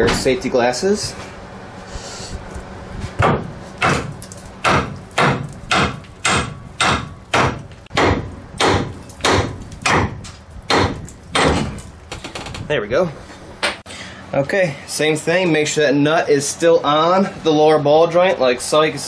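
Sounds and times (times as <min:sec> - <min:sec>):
hammer striking metal: 0:03.2 - 0:11.8.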